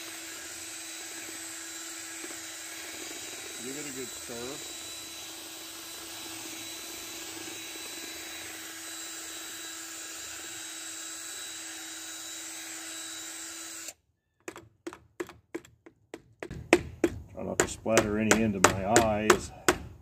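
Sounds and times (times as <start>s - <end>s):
cordless drill whining: 0.0s - 14.0s
paddle knocking on bucket rim: 14.4s - 19.9s.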